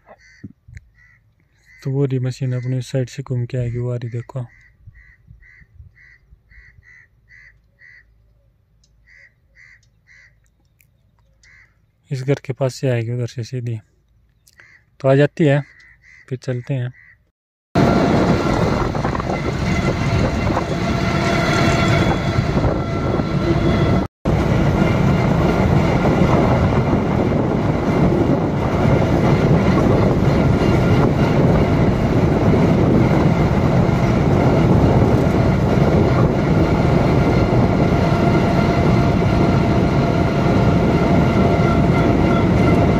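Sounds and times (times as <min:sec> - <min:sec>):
combine harvester engine running: 0:17.8 - 0:42.9.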